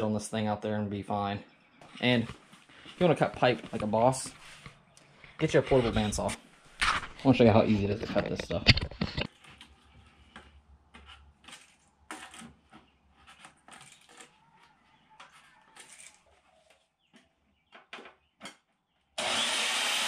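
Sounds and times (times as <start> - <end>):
bandsaw whirring: 19.2 - 20.0.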